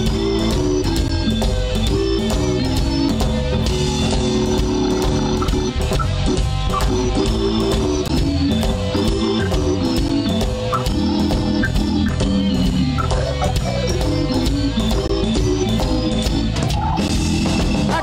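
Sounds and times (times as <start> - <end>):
bass guitar: 0.0 - 18.0
drum kit steady beat: 0.0 - 18.0
electric guitar: 0.0 - 18.0.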